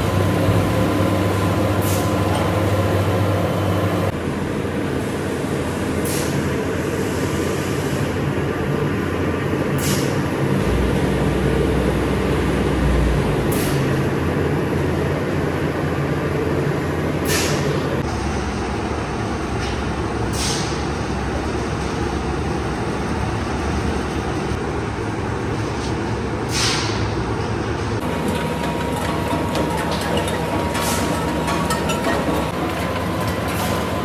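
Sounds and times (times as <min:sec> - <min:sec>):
factory machinery running: 0:00.0 - 0:34.0
short hisses: 0:26.5 - 0:27.0.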